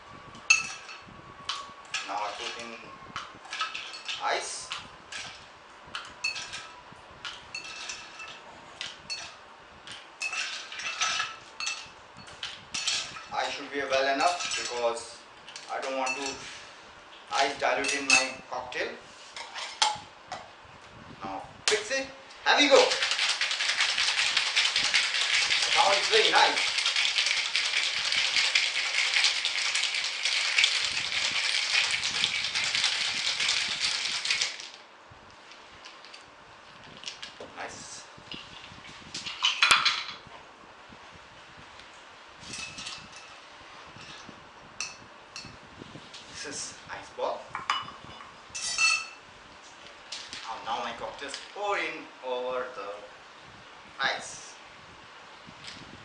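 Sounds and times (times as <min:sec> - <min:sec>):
ice cubes clinking in metal tin: 0:22.7 - 0:34.8.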